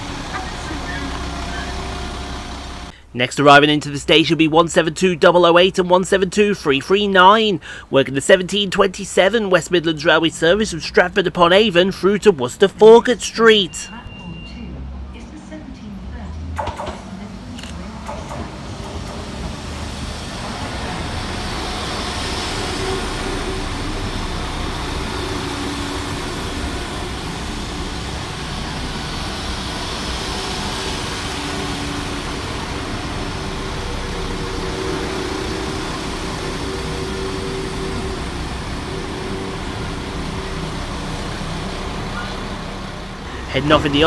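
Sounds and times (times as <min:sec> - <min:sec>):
train wheels rumbling on rails: 0:00.0 - 0:03.0, 0:15.2 - 0:44.0
diesel engines humming: 0:00.0 - 0:44.0.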